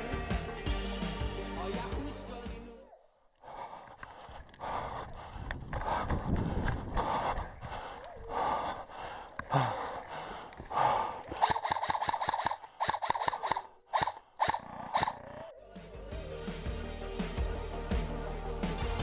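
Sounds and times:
heavy panting breaths: 3.4s - 14.3s
airsoft rifle bursts: 11.4s - 15.4s.

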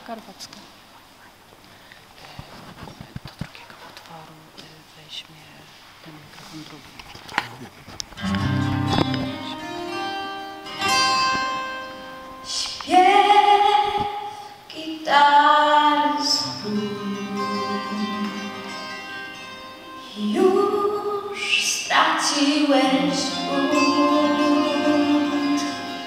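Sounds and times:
instrumental accompaniment: 8.1s - 13.9s, 16.4s - 21.4s, 22.0s - 26.0s
girl singing into microphone: 12.4s - 26.0s.

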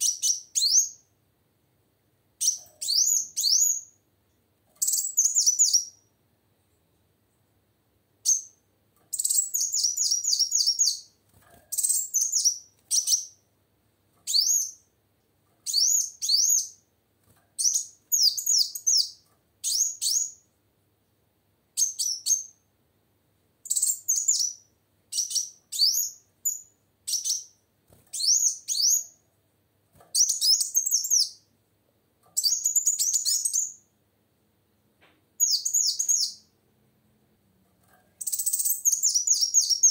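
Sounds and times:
sunbird singing rapid high chirps: 0.0s - 1.1s, 2.4s - 4.0s, 4.8s - 6.1s, 8.2s - 11.1s, 11.8s - 13.4s, 15.6s - 16.8s, 17.6s - 20.4s, 23.6s - 29.2s, 30.2s - 31.5s, 32.4s - 33.9s, 35.4s - 36.5s, 38.2s - 39.9s.

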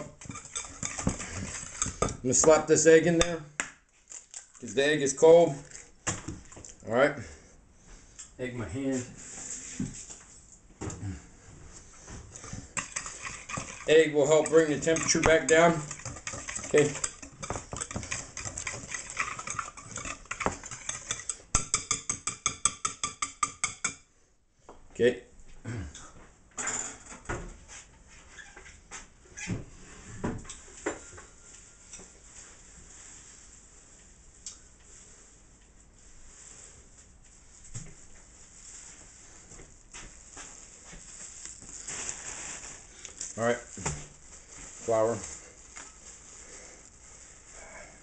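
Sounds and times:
whisk clicking and scraping glass bowl: 0.0s - 3.3s, 12.4s - 24.0s
plastic bag crinkling: 3.9s - 4.8s, 40.2s - 47.6s.

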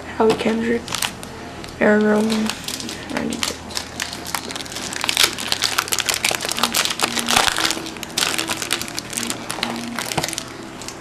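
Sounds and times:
foil wrapper crinkling and tearing: 0.8s - 11.0s.

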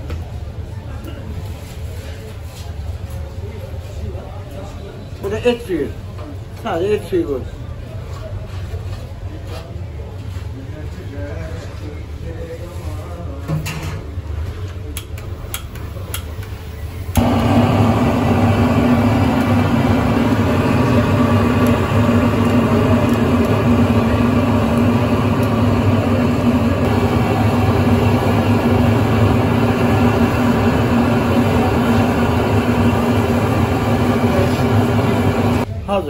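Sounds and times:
loud steady machine hum: 17.0s - 35.7s.

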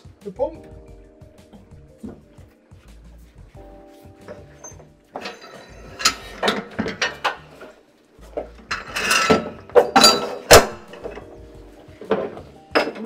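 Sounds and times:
metallic clanks and rattles: 4.2s - 11.4s, 12.0s - 13.0s
metal jangling: 4.3s - 7.7s, 8.7s - 11.3s.

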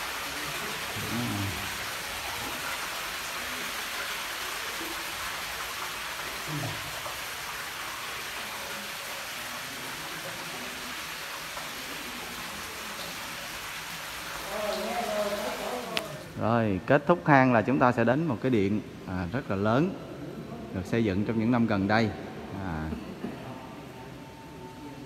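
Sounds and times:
fountain splashing into pool: 0.0s - 16.4s.

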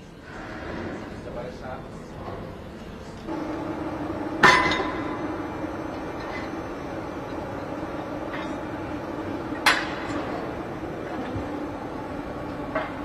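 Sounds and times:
forging machinery humming: 0.1s - 13.0s
loud metallic clanks: 4.0s - 10.6s.

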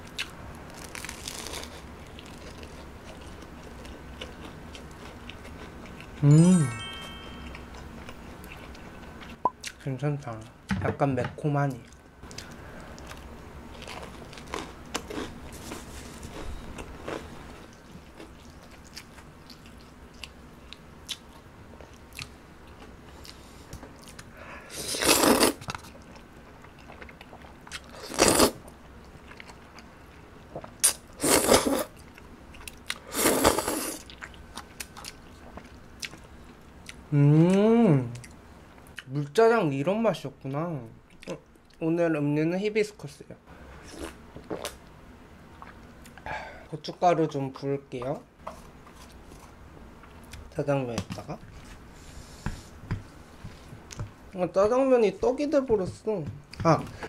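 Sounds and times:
crunching and chewing: 0.0s - 6.2s, 11.8s - 37.0s, 45.5s - 46.2s, 48.4s - 50.5s
loud noodle slurps: 24.7s - 25.6s, 28.0s - 28.6s, 30.8s - 31.9s, 33.1s - 34.0s.

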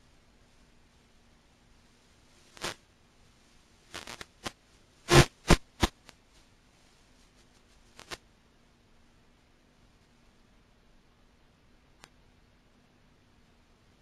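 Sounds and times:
static crackles and pops: 0.0s - 8.4s
faint low hum: 0.0s - 14.0s.

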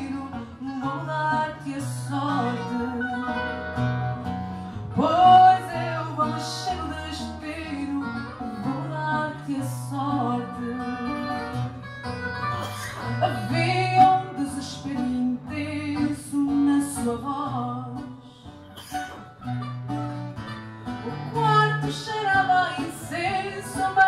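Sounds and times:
woman singing: 0.0s - 3.8s, 4.9s - 11.9s, 13.0s - 18.5s, 21.0s - 24.0s
guitar accompaniment: 0.0s - 24.0s.

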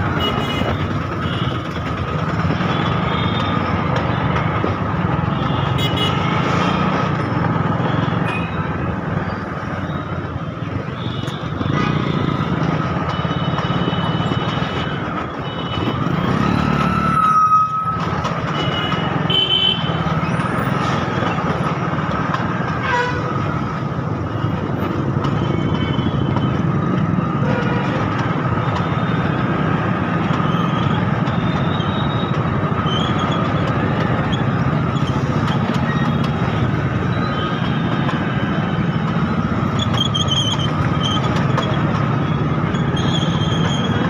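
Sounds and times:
bus engine: 0.0s - 44.0s
motorcycle and scooter engines: 0.0s - 44.0s.

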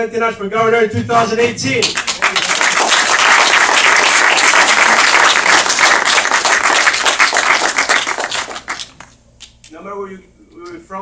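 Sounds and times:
audience applauding: 1.8s - 9.1s.

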